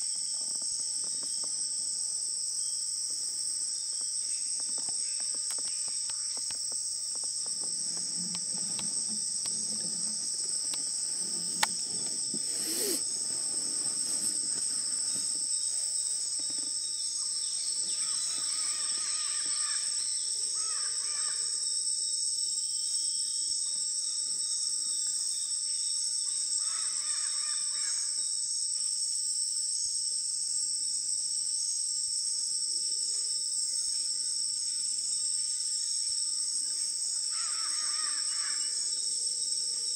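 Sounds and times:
insects buzzing chorus: 0.0 - 39.9
bird or frog calls: 8.3 - 14.3.

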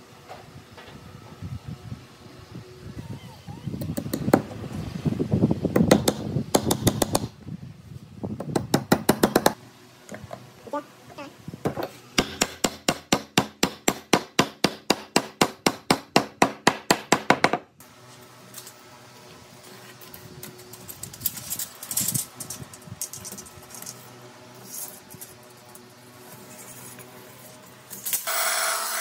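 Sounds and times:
hammer striking wooden plank: 8.5 - 9.6, 12.2 - 17.7.

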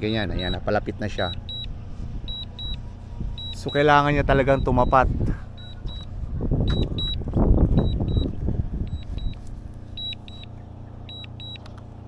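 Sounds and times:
remote controller double beeps: 0.0 - 1.7, 3.4 - 3.9, 5.6 - 6.1, 6.7 - 7.2, 7.8 - 9.4, 10.0 - 10.5, 11.1 - 11.7
low microphone rumble: 0.0 - 11.6
faint steady hum: 0.0 - 12.0.

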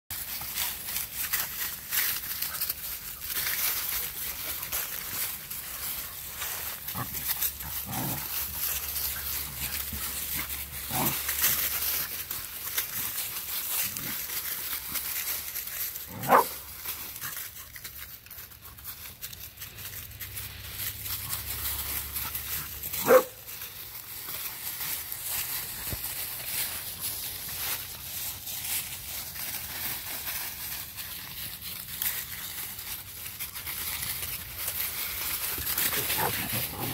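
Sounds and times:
dry leaves crunching underfoot: 0.1 - 36.9
dogs yipping and barking: 16.1 - 16.7, 22.0 - 23.5, 35.8 - 36.9.

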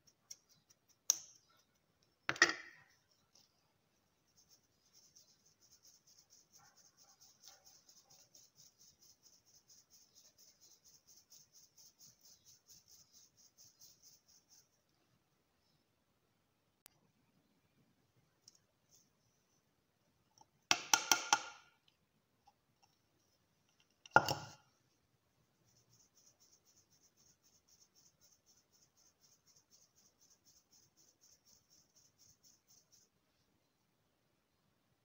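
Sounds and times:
spoon scratching sieve mesh: 4.2 - 14.8.

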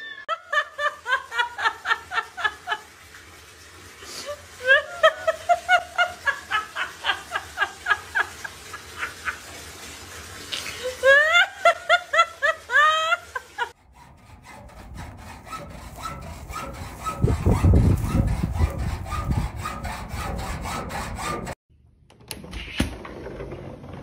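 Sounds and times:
rhythmic rasping scrape: 13.8 - 21.6.

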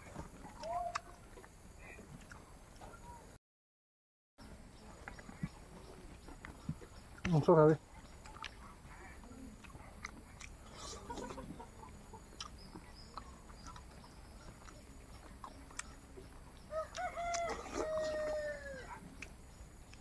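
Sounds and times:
clicks and smacks of eating: 0.1 - 1.6, 5.0 - 18.2, 18.9 - 20.0
rooster crowing: 16.7 - 19.0.

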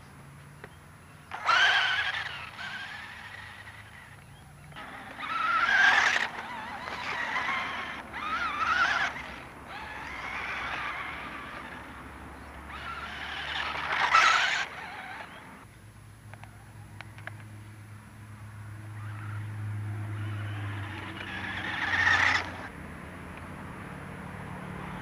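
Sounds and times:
electric motor whining: 0.6 - 15.7, 18.9 - 22.7
tyres scrabbling over dirt: 1.3 - 15.6, 20.5 - 22.7.

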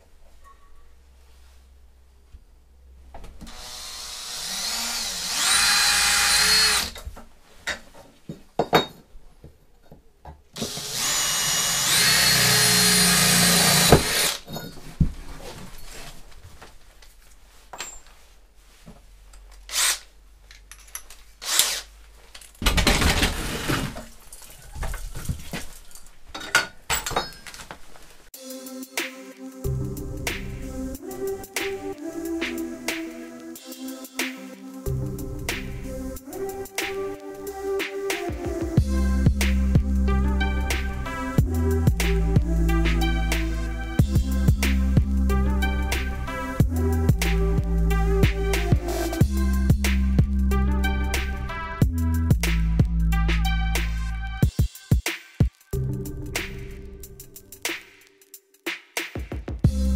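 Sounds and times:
cordless drill whining: 3.5 - 7.0, 10.6 - 14.4, 19.7 - 20.0, 21.4 - 21.8.

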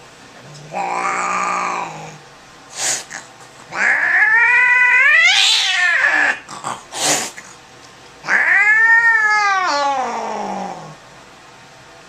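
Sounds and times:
cat yowling: 0.6 - 2.2, 3.7 - 6.5, 8.2 - 11.0
cat hissing: 0.6 - 7.6, 8.2 - 11.0.

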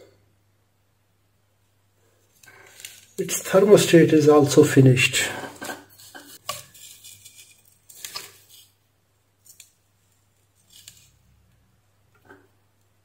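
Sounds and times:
metal contacts scraping: 5.2 - 8.8.

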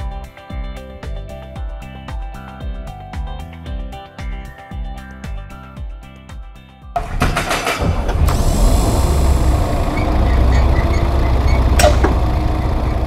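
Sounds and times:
heavy machinery rumble: 7.0 - 13.0
short music: 7.0 - 13.0
sharp metallic clank: 11.6 - 12.4.

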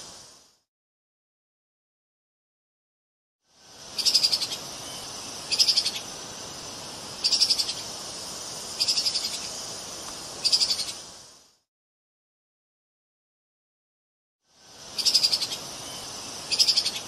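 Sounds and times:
background hiss: 0.0 - 0.7, 3.4 - 11.7, 14.4 - 17.0.

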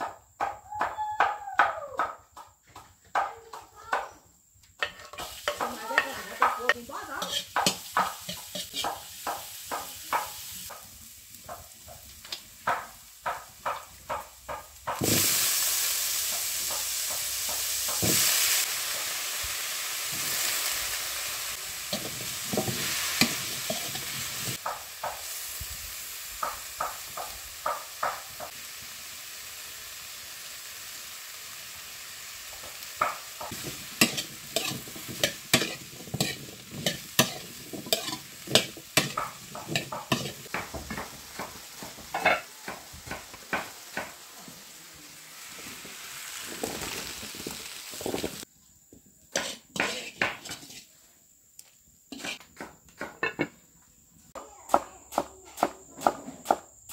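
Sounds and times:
food sizzling in a wok: 0.0 - 2.1, 3.1 - 56.9
ladle stirring in a wok: 4.8 - 10.8, 14.8 - 25.5, 32.7 - 48.5, 49.3 - 51.0, 52.1 - 52.4.

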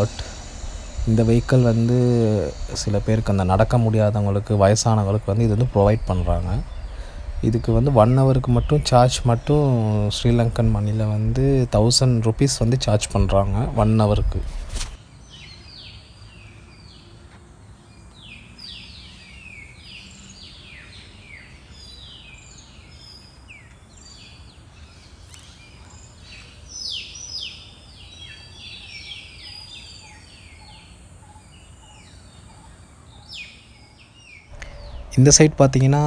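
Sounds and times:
low steady rumble: 0.0 - 14.7, 34.5 - 36.0
birds chirping: 0.0 - 36.0.

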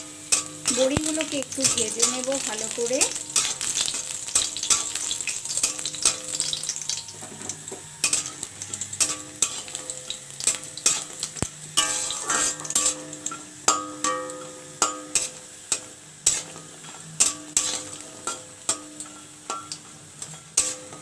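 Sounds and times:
food sizzling in hot oil: 0.0 - 21.0
metal spatula scraping pan: 0.2 - 21.0.

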